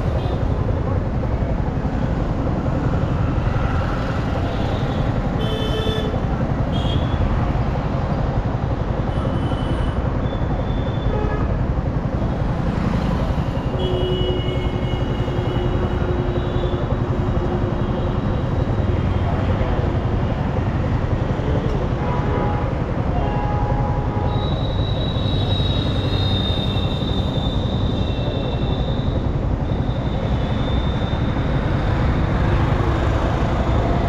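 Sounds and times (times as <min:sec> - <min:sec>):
traffic engine rumble: 0:00.0 - 0:34.0
long vehicle horn: 0:05.4 - 0:07.2, 0:13.7 - 0:17.8, 0:22.0 - 0:25.7.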